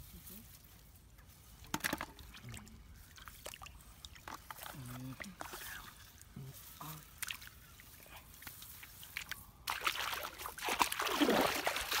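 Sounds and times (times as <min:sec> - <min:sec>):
muddy water sloshing and splashing: 0:00.4 - 0:12.0.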